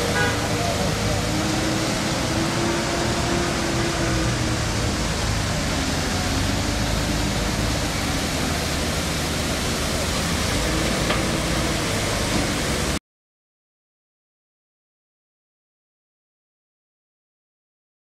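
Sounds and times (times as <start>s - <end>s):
water pouring down a slope: 0.0s - 13.0s.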